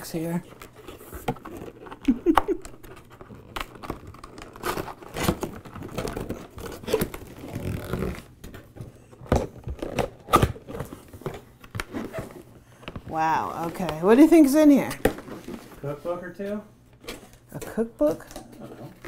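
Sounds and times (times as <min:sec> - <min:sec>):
cardboard rubbing and scraping: 0:04.2 - 0:08.3.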